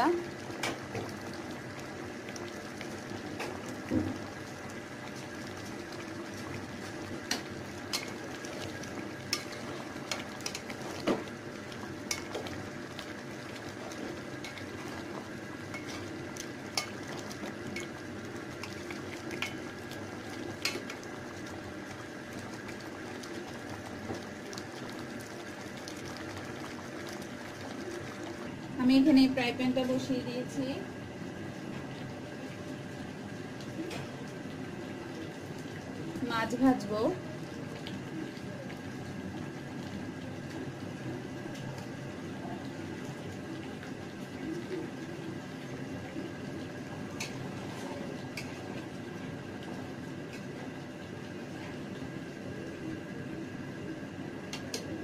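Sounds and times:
curry simmering and sizzling: 0.0s - 55.0s.

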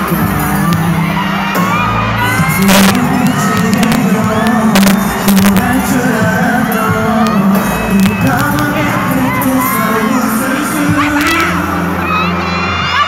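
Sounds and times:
amplified pop band: 0.0s - 13.0s
male vocal group singing: 2.2s - 12.1s.

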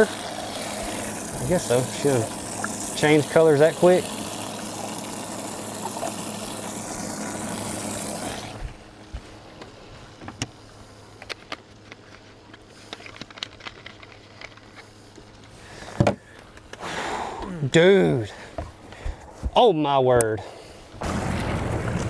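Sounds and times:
pump spraying water: 0.0s - 9.5s, 21.0s - 22.0s.

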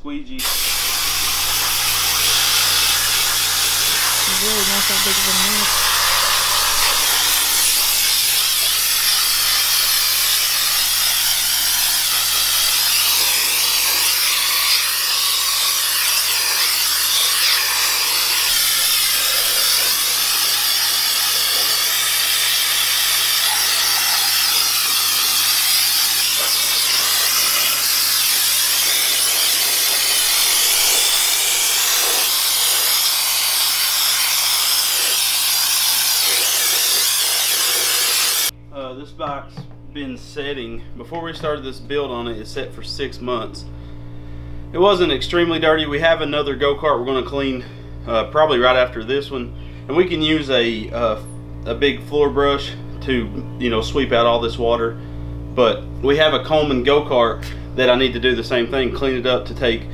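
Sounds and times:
compressed-air wand spraying water: 0.4s - 38.5s.

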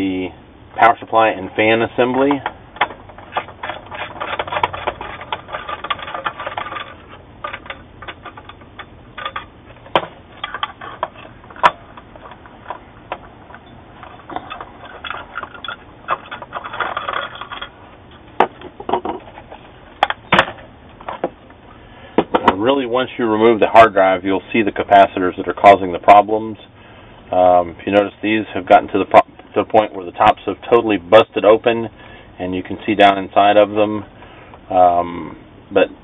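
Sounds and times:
metal and plastic parts rattling: 1.6s - 21.4s
sharp knocks: 9.8s - 10.2s.

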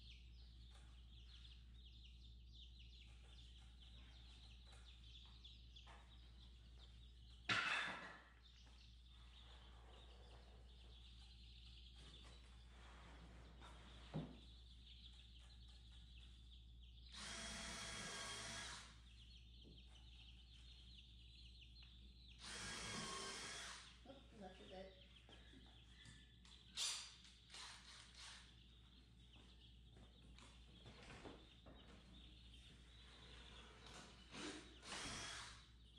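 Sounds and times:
chicks peeping: 0.0s - 35.9s
cordless drill running: 17.1s - 18.9s, 22.4s - 23.9s, 34.8s - 35.6s.

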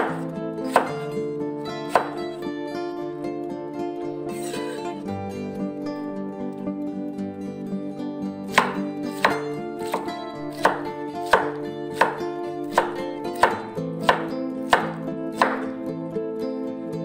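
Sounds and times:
knife chopping on wooden board: 0.0s - 1.1s, 1.9s - 2.2s, 8.5s - 15.7s
plucked-string background music: 0.0s - 17.0s.

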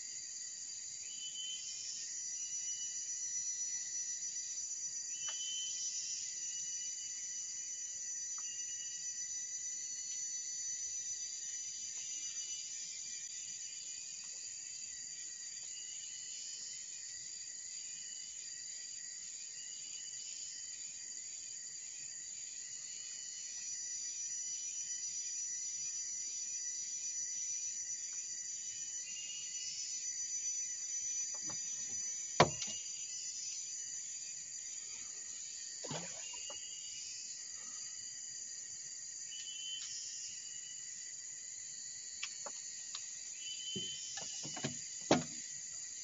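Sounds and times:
insect chirps: 0.0s - 46.0s
insects droning: 0.0s - 46.0s
sharp knock: 32.4s - 32.8s.

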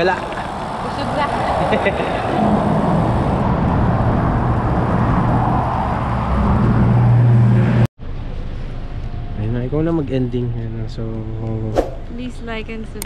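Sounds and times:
rush of passing vehicles: 0.0s - 12.4s
moving air: 11.7s - 12.1s.

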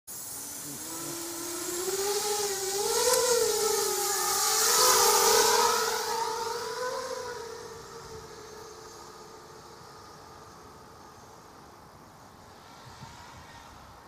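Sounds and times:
quadcopter motors whining: 0.2s - 13.8s.

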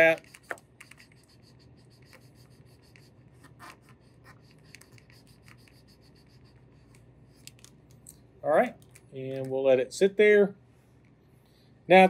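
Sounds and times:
cotton swab scratchy rubbing on wood: 0.0s - 7.0s
faint low hum: 0.0s - 12.0s.

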